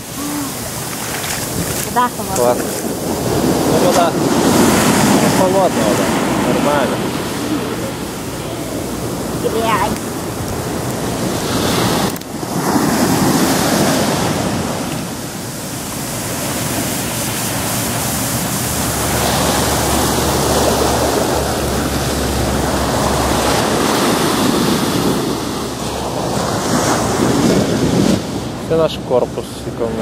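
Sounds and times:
small waves breaking on a beach: 0:00.0 - 0:30.0.

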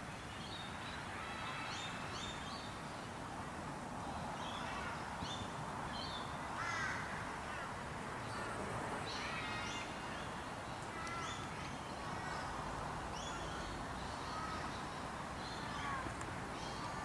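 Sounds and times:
steady background hiss: 0:00.0 - 0:17.0
birds chirping: 0:08.2 - 0:17.0.

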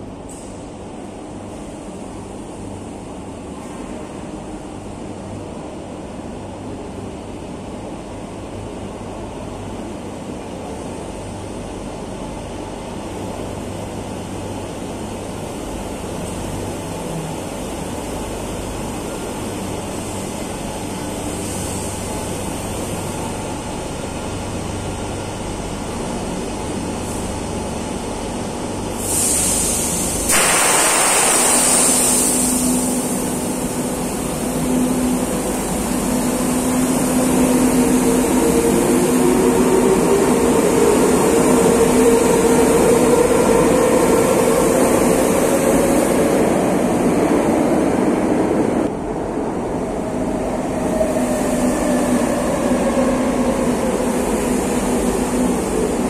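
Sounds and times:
train humming at platform: 0:00.0 - 0:56.0
burst of hiss: 0:28.9 - 0:34.0.

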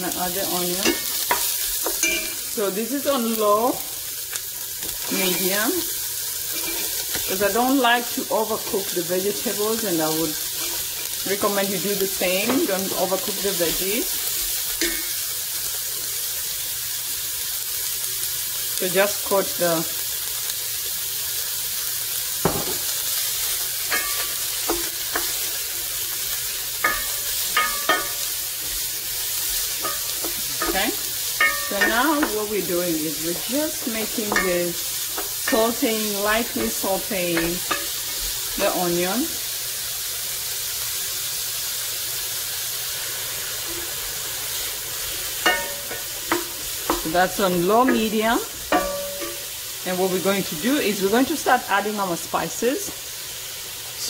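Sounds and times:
vegetables sizzling in oil: 0:00.0 - 0:54.0
wooden spoon scraping a pan: 0:06.4 - 0:07.6, 0:10.1 - 0:15.1, 0:22.7 - 0:38.8.

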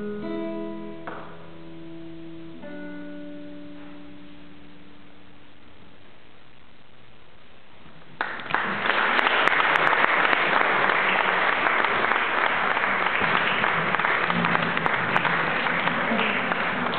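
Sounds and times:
audience applauding: 0:08.2 - 0:16.9.

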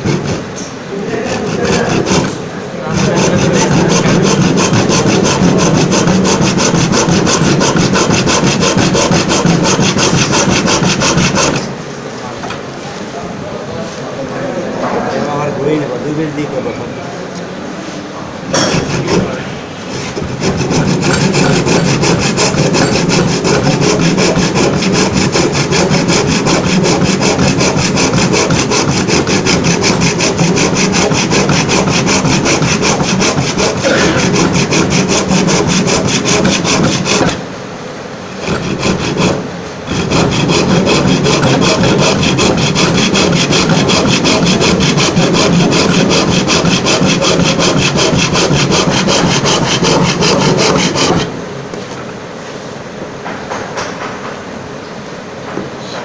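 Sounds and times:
hand saw cutting wood: 0:00.0 - 0:00.5, 0:01.1 - 0:11.7, 0:18.6 - 0:37.4, 0:38.4 - 0:51.3.

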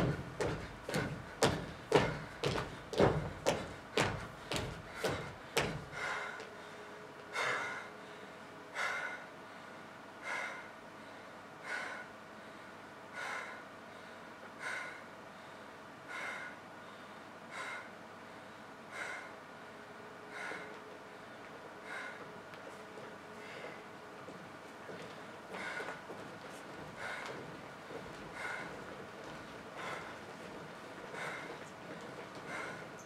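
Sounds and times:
feet thumping on stage floor: 0:00.0 - 0:06.1
person breathing heavily: 0:00.0 - 0:24.0, 0:24.9 - 0:33.0.

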